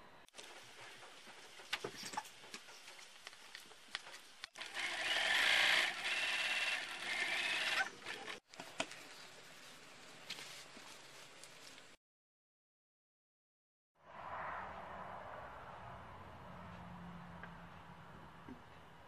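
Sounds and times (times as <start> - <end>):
sewing machine stitching: 4.6 - 8.4
faint clicks and handling sounds: 8.1 - 9.4.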